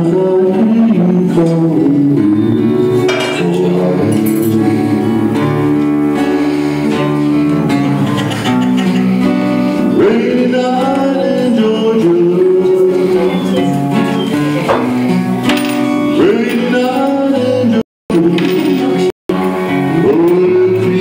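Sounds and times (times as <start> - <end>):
man singing: 0.0 - 6.3, 9.2 - 15.2, 15.8 - 21.0
acoustic guitar: 0.0 - 21.0
bowed upright bass: 1.9 - 10.0.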